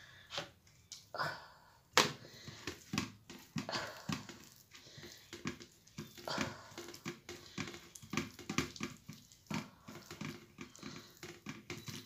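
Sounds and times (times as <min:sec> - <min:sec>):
hand patting wet paste on fish: 0:02.0 - 0:12.0.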